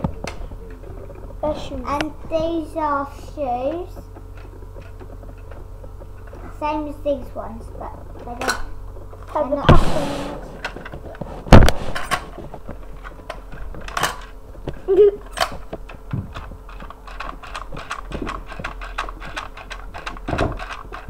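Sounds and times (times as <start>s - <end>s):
objects knocking and clattering: 10.5s - 21.0s.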